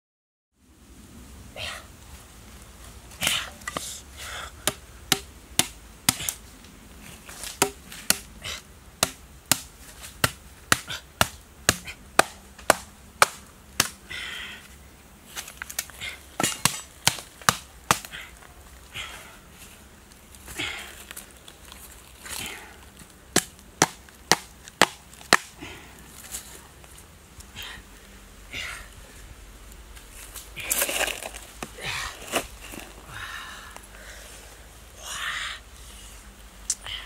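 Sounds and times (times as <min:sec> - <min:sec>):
stake pounded into ground: 0:04.6 - 0:06.4, 0:07.3 - 0:08.3, 0:15.4 - 0:18.2, 0:23.3 - 0:25.5
rustling: 0:29.0 - 0:33.1.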